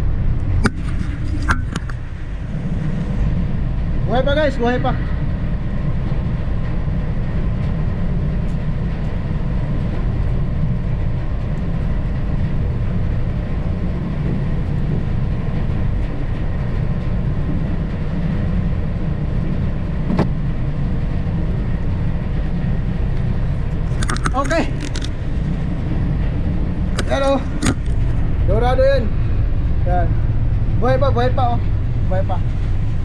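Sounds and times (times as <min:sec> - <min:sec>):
faint steady whine: 0:00.0 - 0:33.0
ship engines droning: 0:00.0 - 0:33.0.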